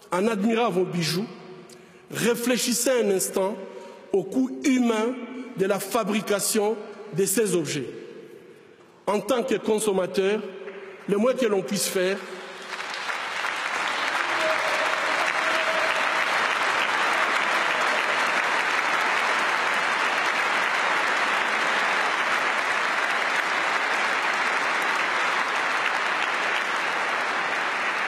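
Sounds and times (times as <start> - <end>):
audience applauding: 12.3 - 28.0.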